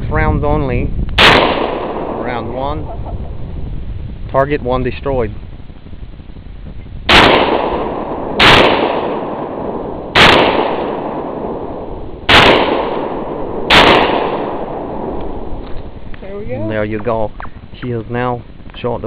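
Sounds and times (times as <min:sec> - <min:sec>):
shotgun shots: 0:01.2 - 0:02.4, 0:07.1 - 0:15.4.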